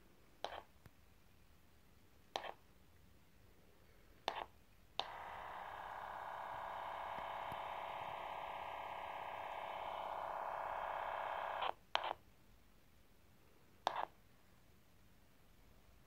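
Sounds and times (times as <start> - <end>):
buzzy radio tone: 5.0 - 11.7.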